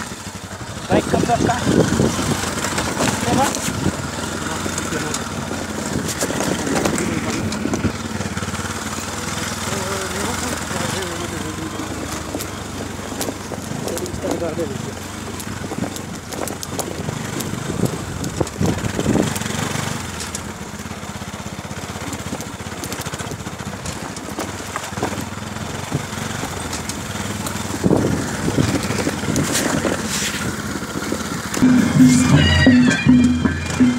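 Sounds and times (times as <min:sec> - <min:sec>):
motorcycle engine running: 0:00.0 - 0:33.9.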